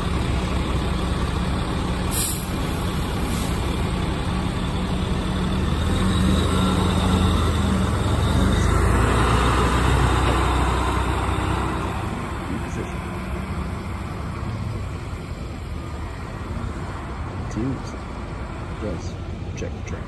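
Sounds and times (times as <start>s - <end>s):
fire truck diesel engine: 0.0s - 20.0s
air hiss: 2.1s - 2.5s.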